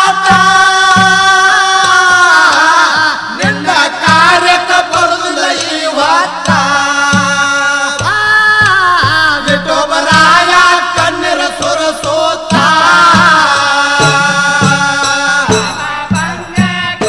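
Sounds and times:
person singing folk song: 0.0 - 17.0
low drum beat: 6.5 - 17.0.

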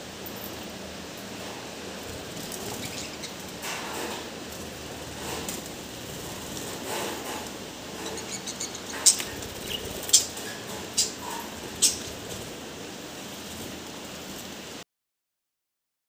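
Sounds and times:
steady background hiss: 0.0 - 14.8
budgerigars chirping: 2.6 - 3.4, 7.9 - 12.2.

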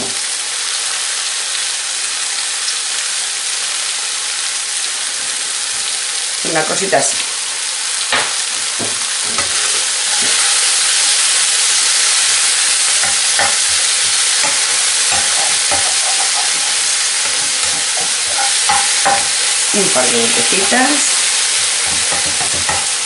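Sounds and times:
spinach sizzling in a frying pan: 0.0 - 23.0
utensil scraping and knocking pan: 8.8 - 10.5, 13.0 - 19.6, 21.8 - 23.0.

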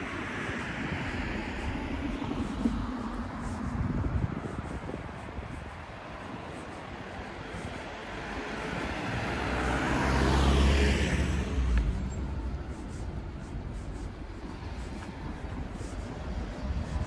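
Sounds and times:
hum of traffic: 0.0 - 17.0
car passing close by: 8.2 - 12.4.

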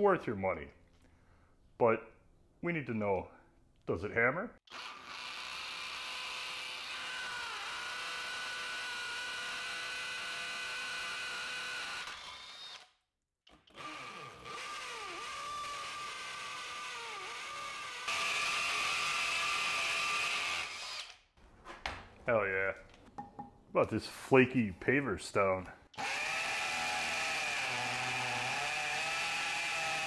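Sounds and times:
hammer drill drilling into masonry: 4.7 - 21.2, 26.0 - 30.0.

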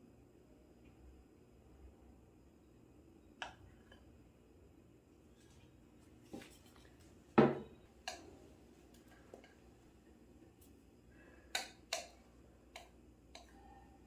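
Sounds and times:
bowl knocking on wooden counter: 7.4 - 7.8.

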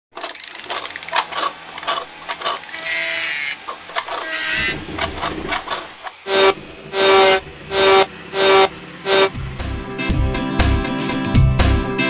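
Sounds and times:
ratcheting clicks: 0.1 - 5.9
clanks and clicks: 0.1 - 6.2
hissing bursts: 2.7 - 9.7.

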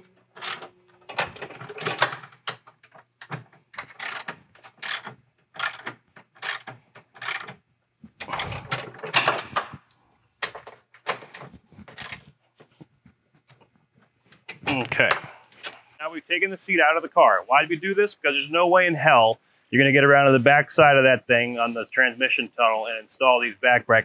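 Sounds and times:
ratchet wrench clicking: 3.9 - 4.2, 4.8 - 7.5.

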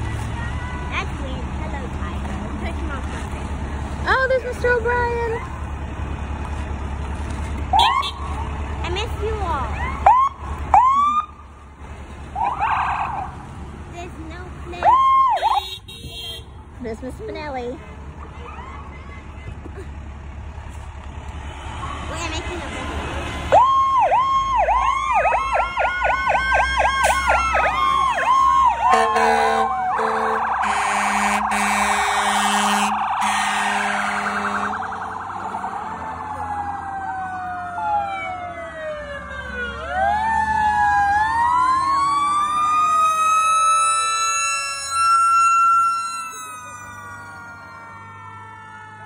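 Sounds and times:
fire truck sirens wailing: 0.0 - 13.6, 14.6 - 16.3, 17.6 - 20.3, 21.2 - 49.0
loud horn blasts: 15.4 - 16.6, 28.8 - 34.8.

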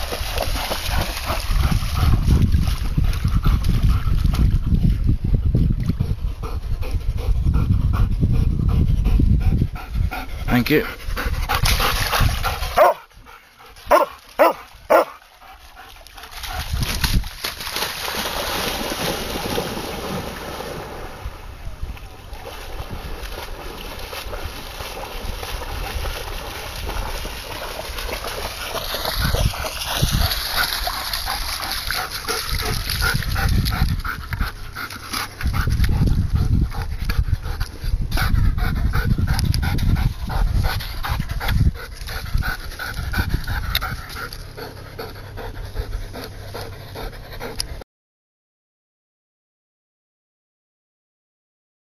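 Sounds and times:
dog barking: 12.8 - 13.0, 13.9 - 15.1
dog panting and whimpering: 38.2 - 47.8.

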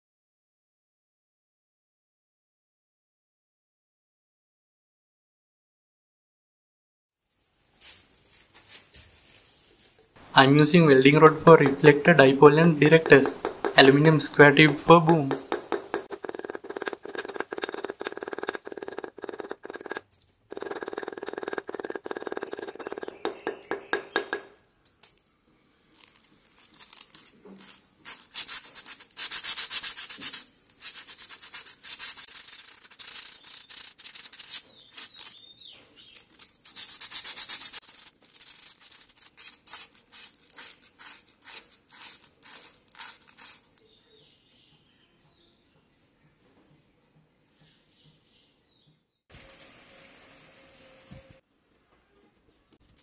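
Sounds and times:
hammer striking steel rod: 11.6 - 19.0, 22.8 - 24.6
scraping along metal rod: 11.6 - 24.4.

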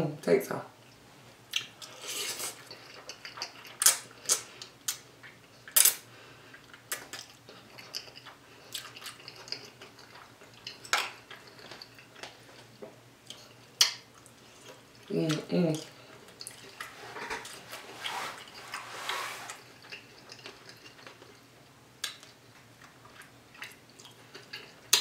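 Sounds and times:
chewing with wet mouth smacks: 2.5 - 5.9, 6.5 - 17.6, 19.5 - 25.0
noodle slurp: 16.5 - 21.0.

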